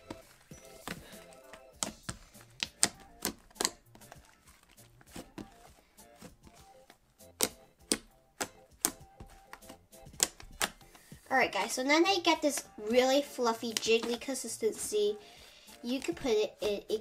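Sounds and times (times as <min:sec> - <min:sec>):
slime squelching with pops: 0:00.0 - 0:11.3
faint background music: 0:00.0 - 0:17.0.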